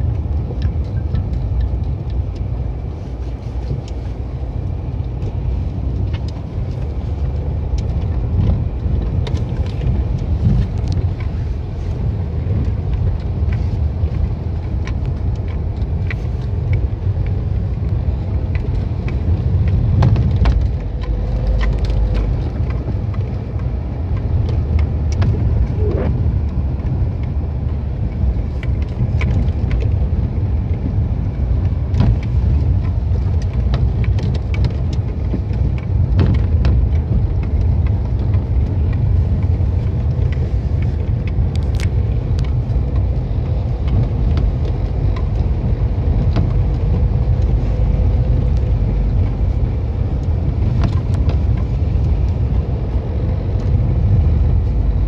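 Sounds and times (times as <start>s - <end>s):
car driving on slushy road: 0.0s - 55.0s.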